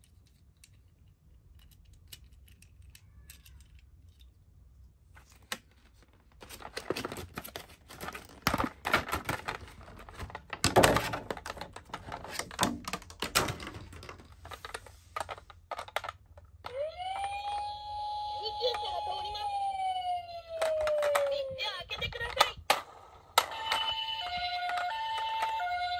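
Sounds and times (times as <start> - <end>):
plastic toys clicking and knocking: 0.0 - 4.9, 6.4 - 17.8, 20.3 - 25.9
plastic crinkling: 5.2 - 16.4
toy electronic siren: 16.6 - 21.9, 23.4 - 25.9.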